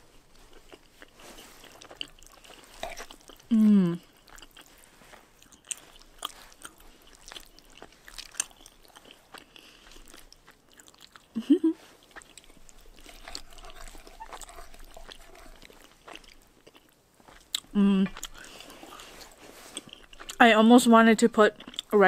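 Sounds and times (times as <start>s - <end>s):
wet chewing mouth sounds: 0.3s - 20.4s, 21.4s - 22.0s
person humming: 3.5s - 4.0s, 17.8s - 18.1s.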